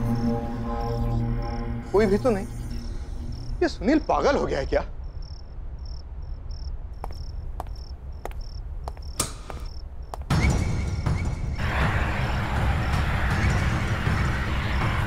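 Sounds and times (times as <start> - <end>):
crickets chirping: 0.0 - 11.6
sharp clicks: 9.0 - 9.8.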